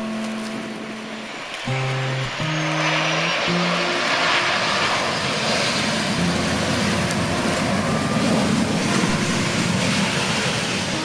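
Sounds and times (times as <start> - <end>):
jet engines rushing: 0.0 - 11.0.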